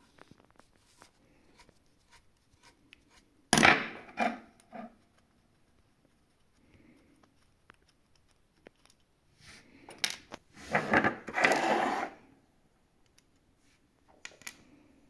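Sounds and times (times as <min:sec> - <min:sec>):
rustling and scraping: 0:04.0 - 0:12.3
light clicks of small parts: 0:13.0 - 0:13.5.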